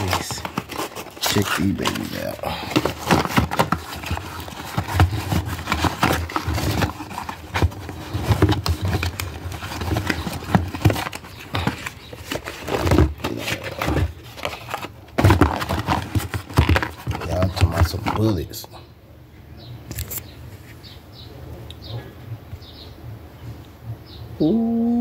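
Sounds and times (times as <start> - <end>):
cardboard boxes knocking and rustling: 0.0 - 18.4.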